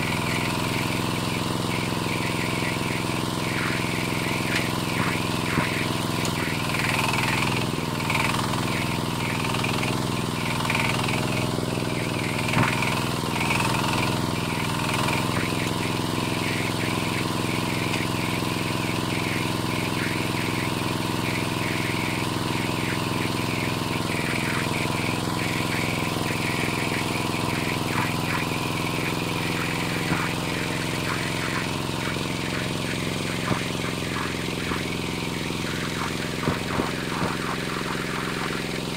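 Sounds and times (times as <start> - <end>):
diesel engine running under load: 0.0 - 38.9.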